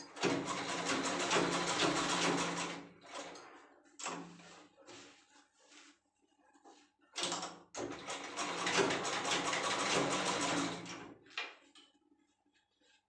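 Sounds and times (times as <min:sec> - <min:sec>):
sewing machine clatter: 0:00.0 - 0:04.6, 0:07.2 - 0:11.2.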